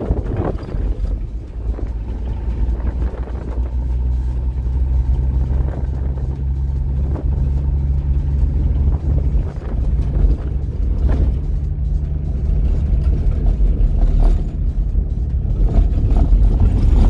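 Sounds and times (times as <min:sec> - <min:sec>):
car engine running: 0:00.0 - 0:17.0
tyres rumbling over gravel: 0:00.0 - 0:17.0.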